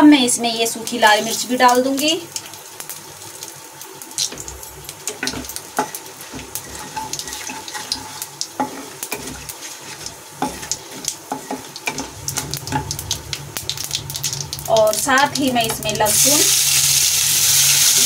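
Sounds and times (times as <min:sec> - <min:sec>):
spices sizzling in hot oil: 0:00.0 - 0:18.0
wooden spatula scraping pan: 0:05.8 - 0:12.1.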